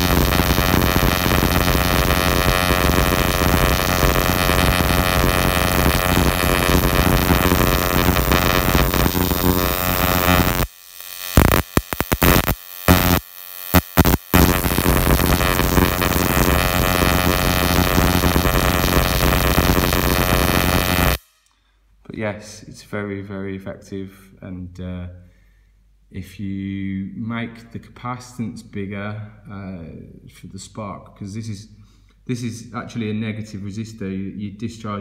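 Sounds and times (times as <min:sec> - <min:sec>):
spark plug electrical buzz: 0:00.0 - 0:21.4.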